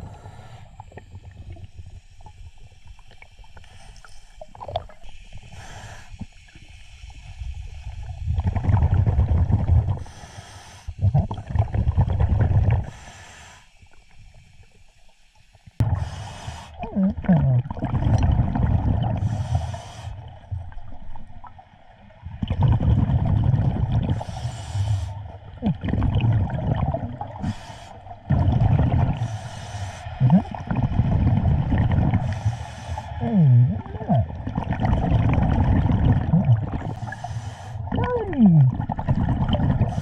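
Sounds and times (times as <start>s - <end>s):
regulator hiss on inhale: 0.0s - 4.4s, 5.0s - 8.0s, 10.0s - 11.0s, 12.8s - 16.8s, 19.2s - 20.4s, 24.1s - 25.4s, 27.4s - 28.3s, 29.2s - 30.2s, 32.2s - 33.2s, 36.9s - 37.9s
exhale bubbling rumble: 7.2s - 10.2s, 10.9s - 13.0s, 15.8s - 40.0s.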